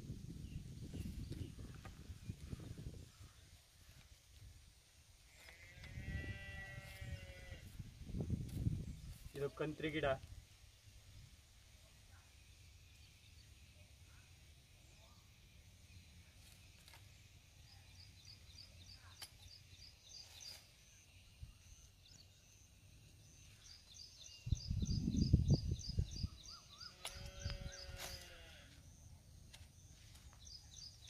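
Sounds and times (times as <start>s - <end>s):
small bird chirping: 12.1s - 31.0s.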